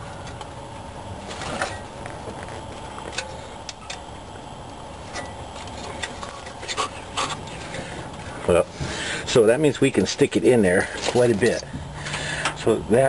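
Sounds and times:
steady background hum: 0:00.0 - 0:13.0
wire scraping against metal: 0:05.0 - 0:08.0.

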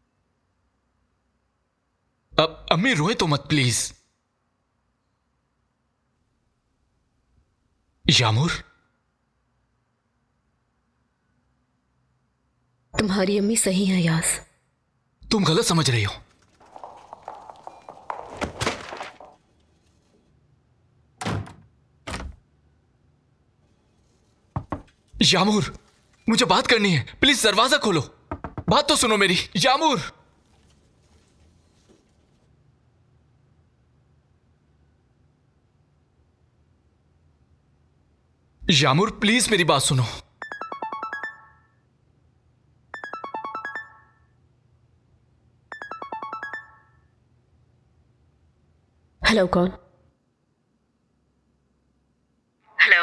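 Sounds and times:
quick footsteps clattering: 0:16.2 - 0:19.6
wooden door shut hard: 0:21.2 - 0:22.4
phone ringtone: 0:40.4 - 0:41.8, 0:43.0 - 0:44.4, 0:45.7 - 0:47.1.

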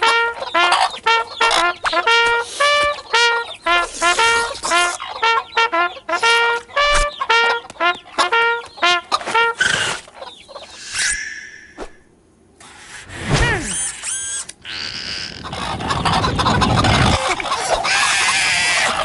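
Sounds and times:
staccato brass notes: 0:00.0 - 0:09.7
cartoon hen clucking and squawking: 0:02.8 - 0:09.2, 0:15.4 - 0:19.0.

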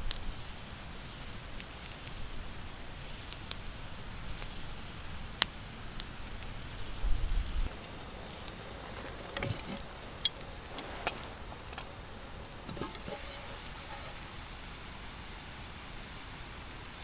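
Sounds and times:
light clicks and pops: 0:00.0 - 0:14.3
food sizzling in a skillet: 0:00.0 - 0:17.0
lid bump: 0:12.7 - 0:14.2.

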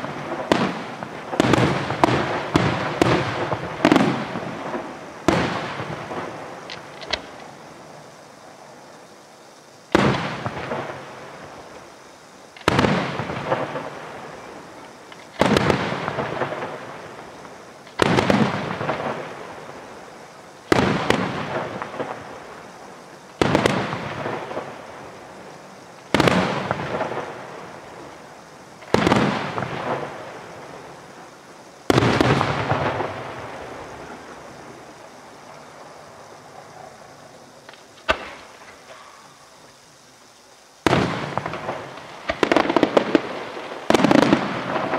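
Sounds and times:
firework shells bursting: 0:00.0 - 0:07.5, 0:37.6 - 0:39.0, 0:40.8 - 0:44.9
firework crackle: 0:00.0 - 0:09.1, 0:09.7 - 0:44.9.

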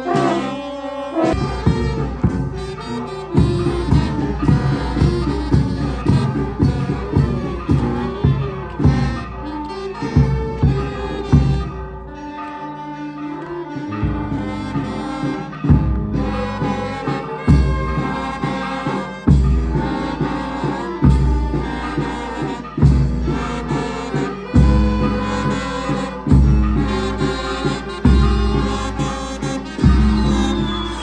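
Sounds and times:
folk band music with brass: 0:00.0 - 0:31.0
heavy low beat: 0:01.3 - 0:09.3.

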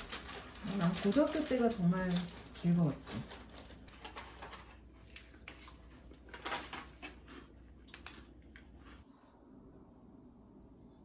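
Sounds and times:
paper rustling: 0:00.0 - 0:08.3.

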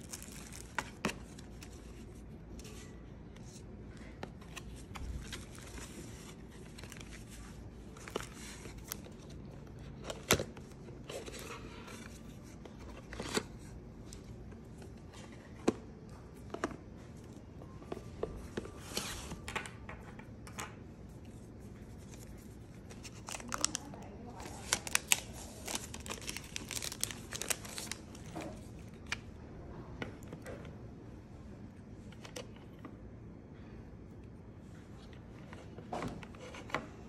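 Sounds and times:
paper leaflets rustling: 0:21.8 - 0:29.2.

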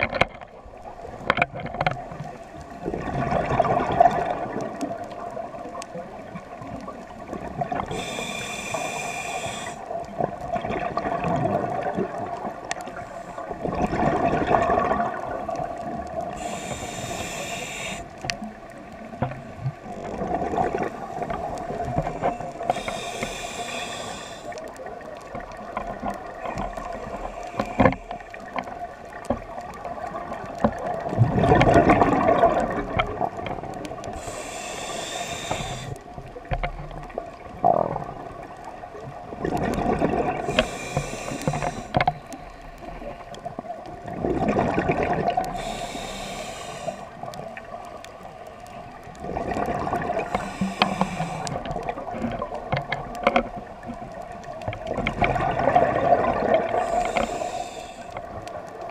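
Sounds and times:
rush of exhaled bubbles: 0:02.8 - 0:05.5, 0:08.8 - 0:12.6, 0:13.5 - 0:17.9, 0:19.8 - 0:24.4, 0:29.9 - 0:34.3, 0:37.1 - 0:38.5, 0:39.2 - 0:41.9, 0:44.0 - 0:46.0, 0:49.2 - 0:52.6, 0:55.0 - 0:57.8
regulator hissing inhalations: 0:07.9 - 0:09.9, 0:16.4 - 0:18.2, 0:22.6 - 0:24.6, 0:34.2 - 0:36.0, 0:40.5 - 0:43.0, 0:45.5 - 0:47.2, 0:50.2 - 0:51.6, 0:56.8 - 0:58.2.

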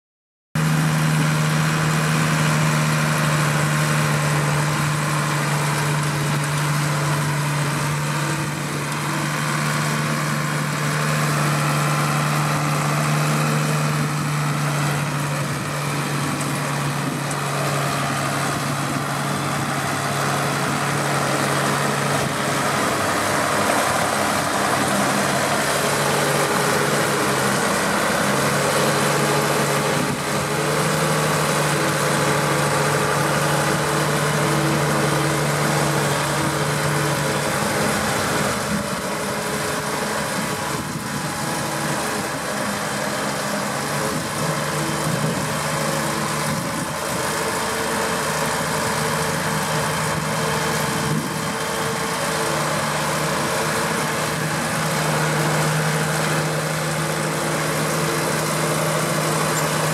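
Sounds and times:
tractor diesel engine running: 0:00.6 - 0:59.9.

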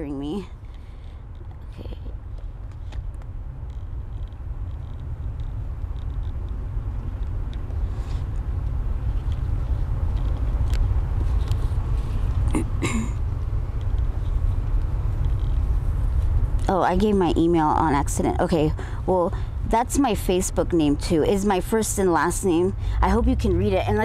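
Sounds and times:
low outdoor rumble: 0:00.0 - 0:24.0.

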